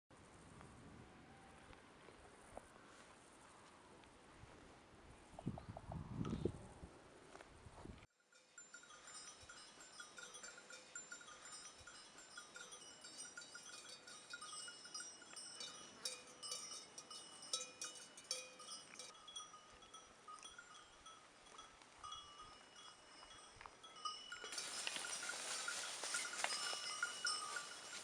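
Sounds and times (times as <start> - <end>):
sheep bells clinking: 8.2 - 28.0.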